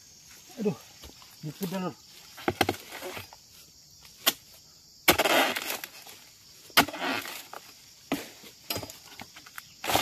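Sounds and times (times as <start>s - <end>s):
chisel chopping palm stalk: 4.2s - 6.1s, 6.8s - 10.0s.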